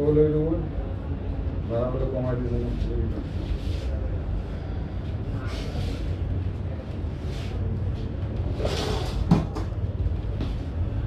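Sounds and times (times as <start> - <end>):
background traffic hum: 0.0 - 11.0.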